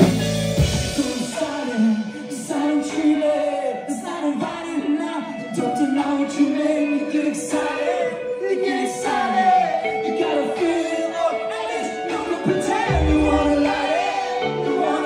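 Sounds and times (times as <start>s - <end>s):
drum cymbals: 0.0s - 2.6s
electric guitars: 0.0s - 15.0s
man singing: 0.0s - 15.0s.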